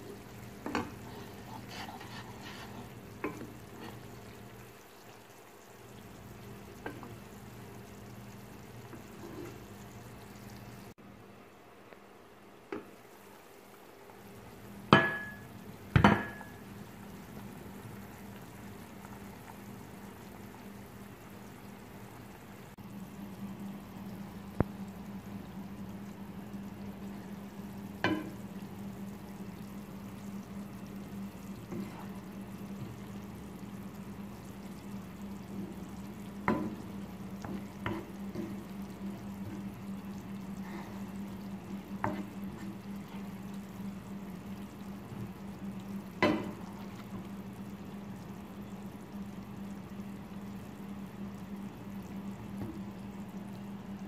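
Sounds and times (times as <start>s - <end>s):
food sizzling in oil: 12.8s - 22.0s, 23.0s - 53.9s
wooden spatula knocking on pan: 14.9s - 15.4s, 16.0s - 16.4s.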